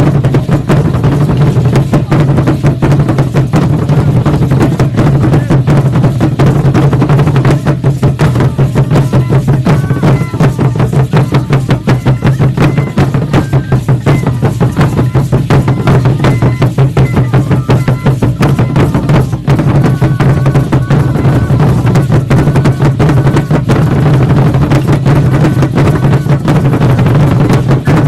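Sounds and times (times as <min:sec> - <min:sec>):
fast drumming with deep boom: 0:00.0 - 0:28.0.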